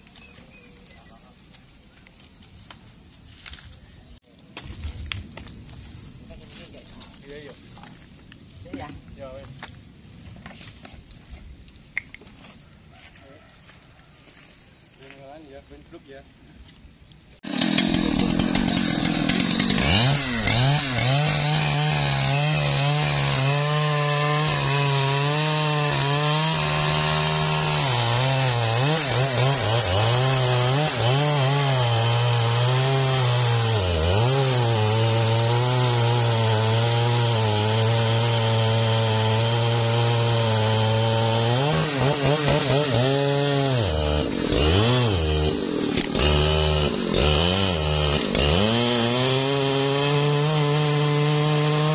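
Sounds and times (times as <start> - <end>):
chainsaw cutting wood: 17.4 - 51.9.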